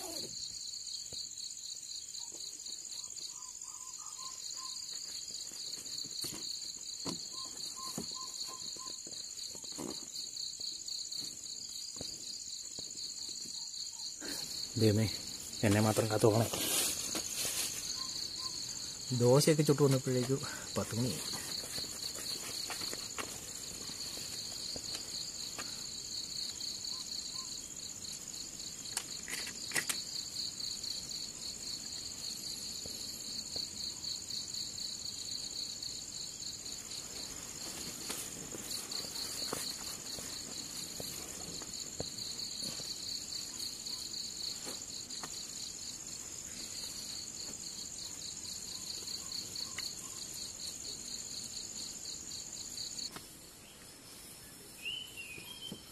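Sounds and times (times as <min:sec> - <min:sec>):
cricket high trill: 0:00.0 - 0:01.0, 0:02.9 - 0:05.0, 0:13.2 - 0:21.8
cricket fast pulsing chirp: 0:00.0 - 0:55.9.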